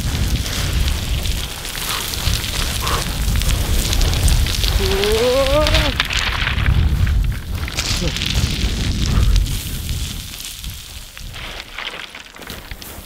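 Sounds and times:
feet running on gravel: 0.0s - 13.0s
stones crunching and scattering: 0.0s - 13.0s
wind rumble on microphone: 0.0s - 13.0s
person whooping: 4.7s - 6.0s.

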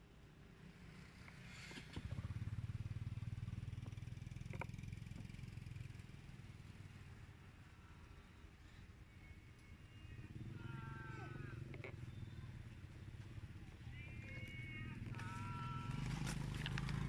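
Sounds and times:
vehicle engine passing by: 0.6s - 7.0s, 10.1s - 17.0s.

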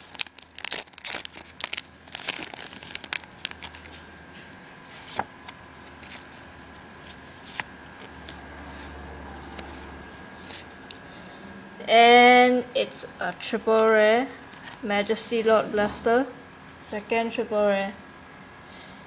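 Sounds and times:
foil pack tearing and crinkling: 0.0s - 4.0s.

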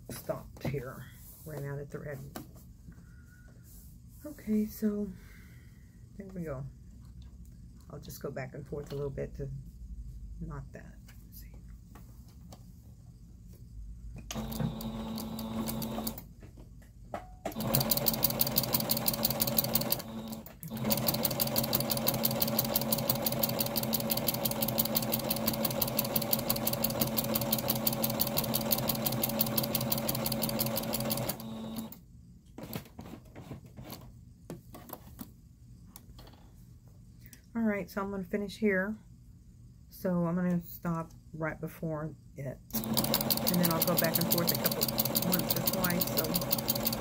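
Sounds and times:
electric sewing machine stitching: 14.3s - 16.3s, 17.5s - 32.0s, 42.7s - 47.0s.

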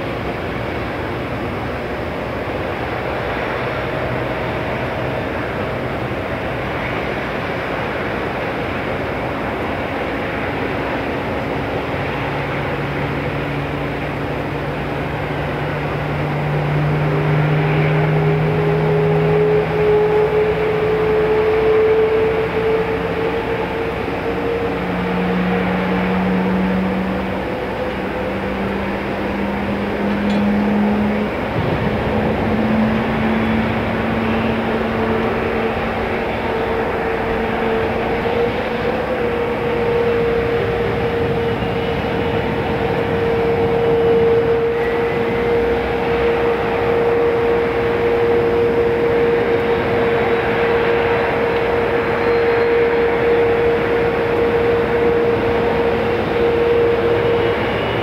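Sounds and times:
jet engines rushing and whining: 0.0s - 58.0s.

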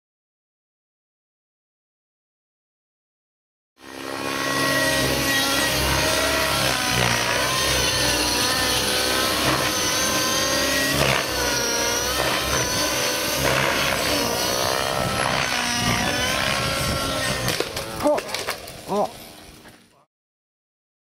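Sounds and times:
model helicopter engine and rotor: 3.8s - 18.0s.

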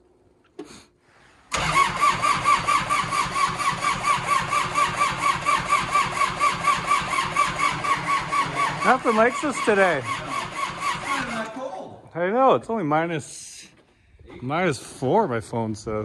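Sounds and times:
diesel engine cranking: 1.5s - 11.6s.

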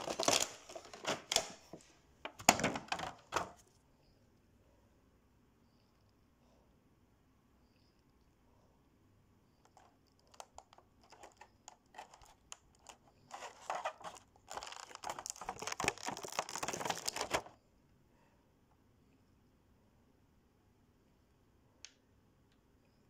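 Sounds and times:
plastic blister pack crinkling: 0.0s - 3.6s, 9.7s - 17.6s.

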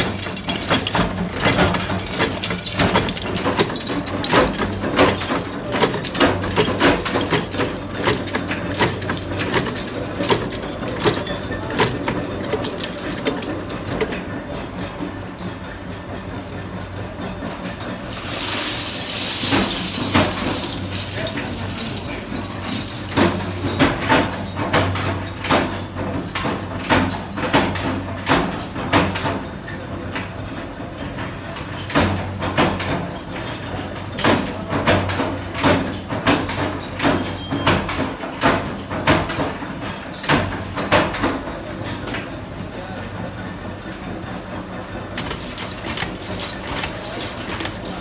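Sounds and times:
high hissing jingle: 18.0s - 23.7s.

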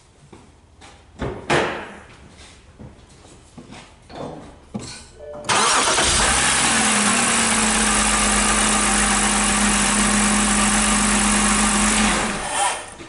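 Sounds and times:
car engine starting and running: 5.5s - 12.5s
engine misfire: 5.5s - 13.0s.

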